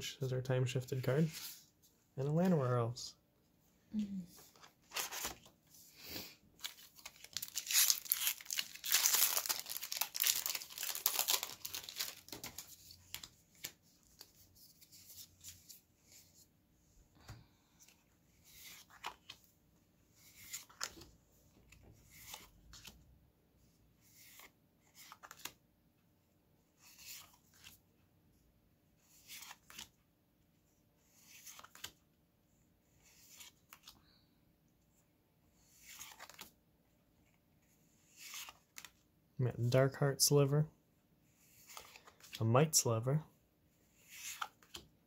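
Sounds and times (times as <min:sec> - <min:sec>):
foil wrapper tearing and crinkling: 0:07.1 - 0:12.2
cards sliding: 0:31.1 - 0:32.0, 0:35.7 - 0:36.5, 0:38.0 - 0:38.9, 0:41.4 - 0:42.4, 0:43.9 - 0:44.9.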